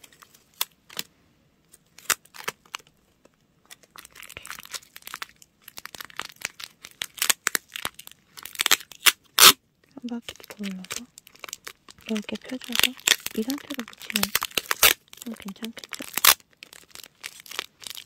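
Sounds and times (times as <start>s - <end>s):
paper crinkling: 3.7s - 18.0s
adhesive tape ripping off roll: 5.8s - 9.6s, 10.4s - 18.0s.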